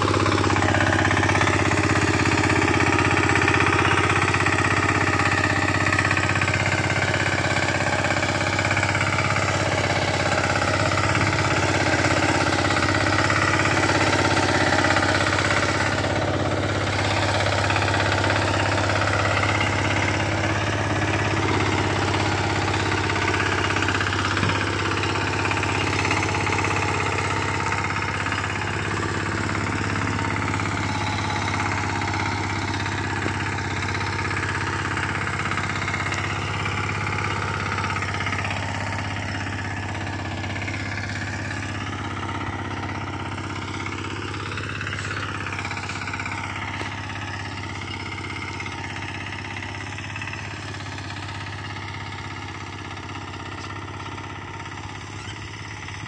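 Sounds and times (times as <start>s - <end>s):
tiller engine running: 0.0s - 56.0s
tines churning soil: 9.1s - 51.6s.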